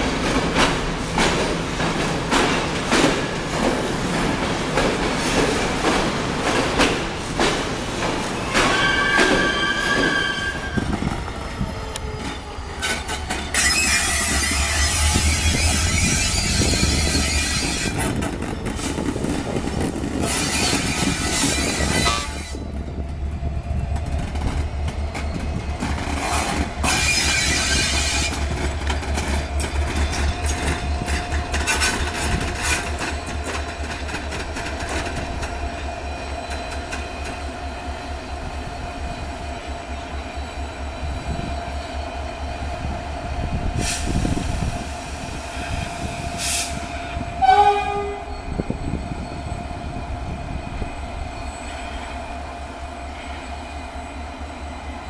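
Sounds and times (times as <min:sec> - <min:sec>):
train rumbling: 0:00.0 - 0:55.0
train horn blast: 0:21.8 - 0:22.6, 0:46.4 - 0:48.4.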